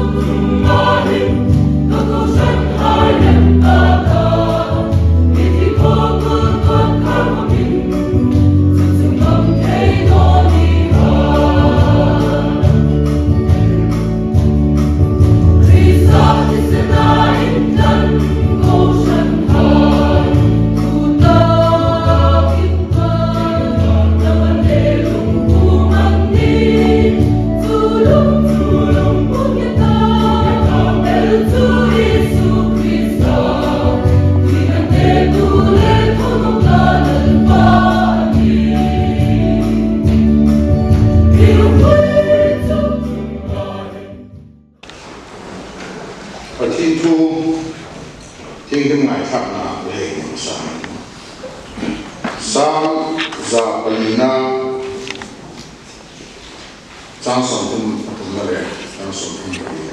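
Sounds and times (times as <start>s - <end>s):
choir singing gospel: 0.0s - 44.5s, 45.2s - 59.9s
instrumental accompaniment with beat: 0.0s - 44.5s.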